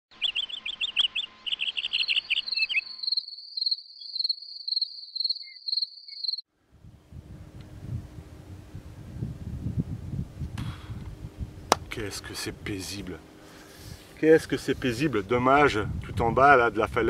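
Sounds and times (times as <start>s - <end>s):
crickets chirping: 0.2s - 6.5s
soft low pulses: 6.6s - 16.2s
low outdoor rumble: 6.6s - 17.0s.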